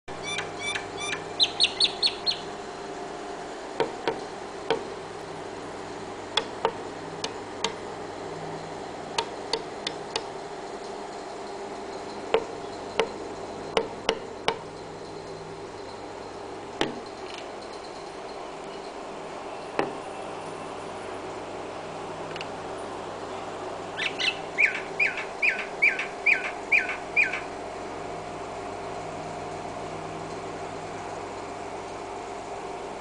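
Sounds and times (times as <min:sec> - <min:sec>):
short bird calls: 0:00.2 - 0:02.6, 0:24.0 - 0:27.5.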